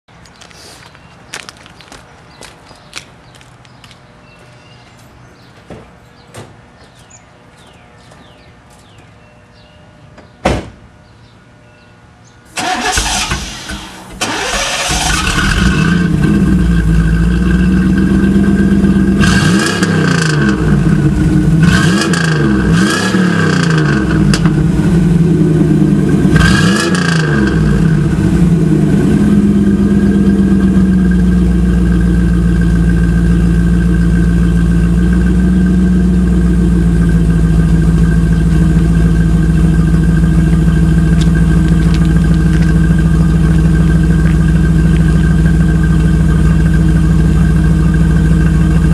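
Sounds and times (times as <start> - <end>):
car engine starting and idling: 12.5 - 48.9
engine revving: 12.6 - 30.1.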